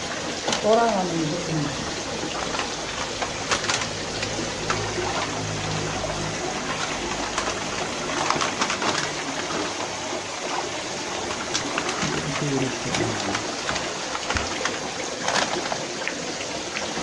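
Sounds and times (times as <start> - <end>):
water running and splashing: 0.0 - 17.0
low hum: 1.6 - 9.6.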